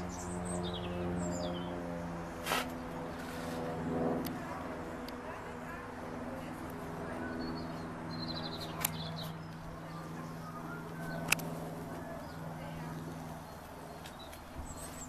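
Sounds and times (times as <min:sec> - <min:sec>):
propeller aircraft engine drone: 0:00.0 - 0:15.0
bird chirping: 0:07.3 - 0:09.6.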